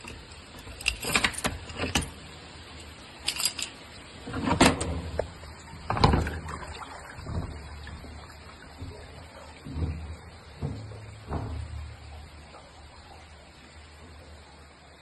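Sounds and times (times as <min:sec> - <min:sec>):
padlock and latch clanking: 0:00.0 - 0:02.2.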